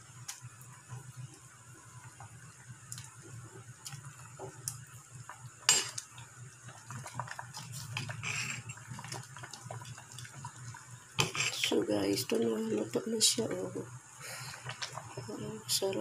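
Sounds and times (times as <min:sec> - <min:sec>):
low steady hum: 0:00.0 - 0:16.0
metal ladle scraping pot: 0:08.0 - 0:08.8, 0:11.2 - 0:11.7.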